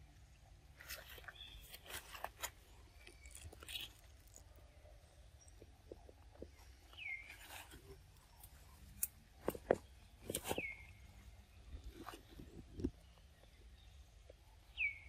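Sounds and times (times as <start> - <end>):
twigs and leaves crackling: 0.7 - 4.8, 5.5 - 13.2.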